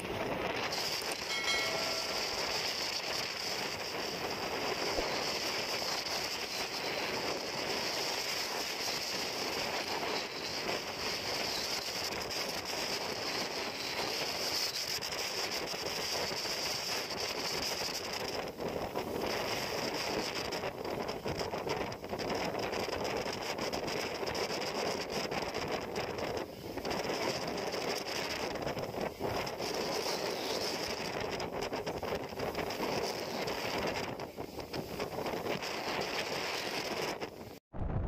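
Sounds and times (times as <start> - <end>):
wind rushing: 28.4 - 38.0.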